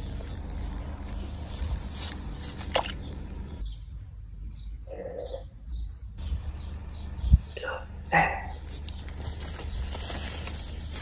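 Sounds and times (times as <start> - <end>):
handling rustle and rumble: 0.0 - 3.7, 6.2 - 11.0
faint bird chirps: 4.5 - 10.0.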